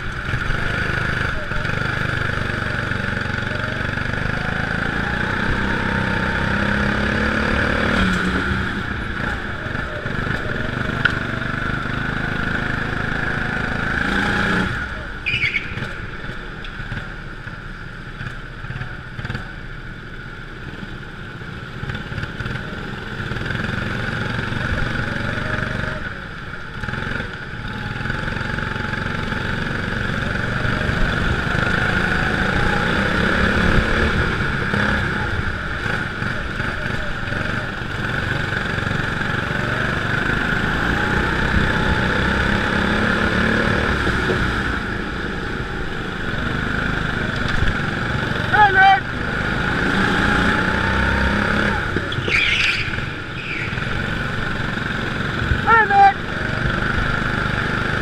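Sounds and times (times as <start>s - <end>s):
go-kart engine revving: 0.0s - 58.0s
short high squeal: 15.2s - 15.8s, 52.1s - 53.9s.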